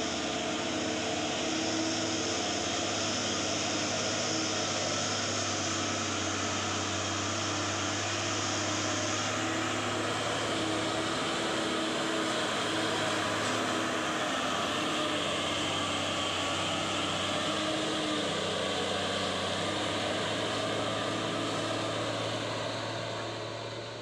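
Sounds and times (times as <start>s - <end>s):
diesel truck engine driving past: 0.0s - 24.0s.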